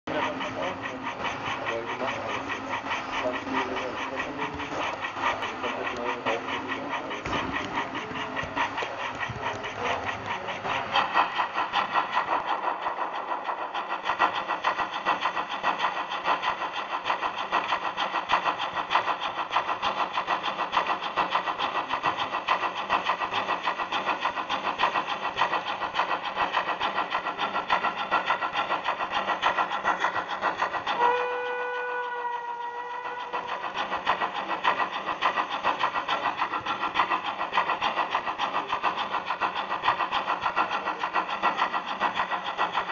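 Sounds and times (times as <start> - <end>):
steam locomotive running: 0.1 - 42.9
train whistle: 31.0 - 33.4.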